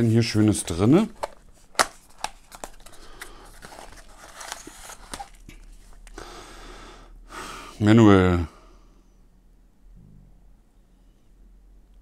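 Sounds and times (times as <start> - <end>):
cardboard and paper rustling: 0.0 - 6.0.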